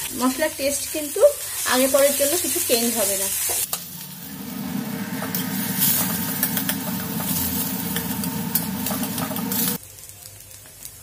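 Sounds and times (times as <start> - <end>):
oil sizzling: 0.0 - 11.0
steady low hum: 3.8 - 9.8.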